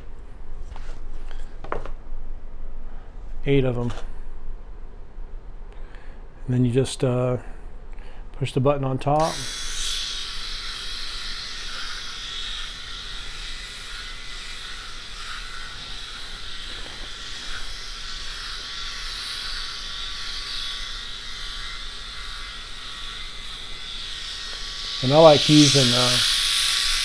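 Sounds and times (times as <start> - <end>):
electric shaver running: 9.2 - 27.0.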